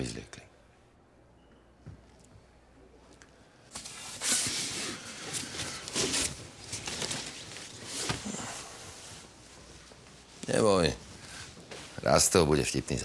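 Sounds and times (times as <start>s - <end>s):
cloth rustling: 3.7s - 12.5s.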